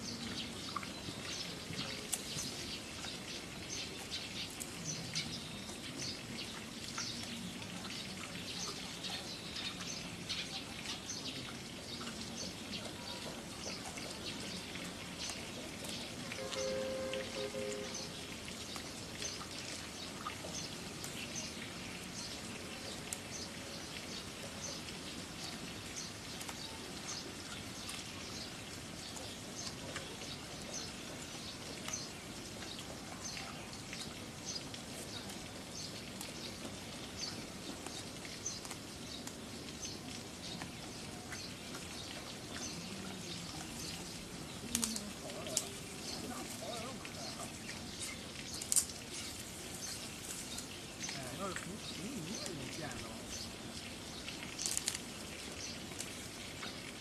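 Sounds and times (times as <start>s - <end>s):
small birds chirping: 0.0s - 57.0s
panda chewing bamboo: 54.4s - 56.3s.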